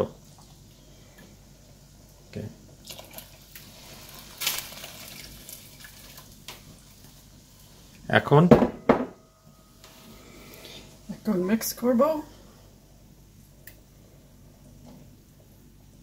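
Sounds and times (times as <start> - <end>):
water pouring into pot: 0.0 - 0.8, 2.7 - 7.9
cup knock: 8.5 - 9.2.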